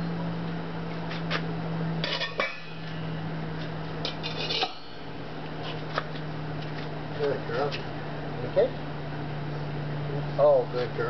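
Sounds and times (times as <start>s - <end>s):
steady low hum: 0.0s - 11.0s
metal bowls clanking on concrete: 2.0s - 3.2s, 4.0s - 5.2s.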